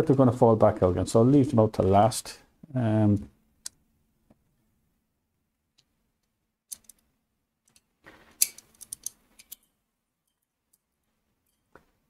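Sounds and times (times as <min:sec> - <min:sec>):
plastic parts clicking and rattling: 0:06.7 - 0:07.1, 0:07.7 - 0:09.7.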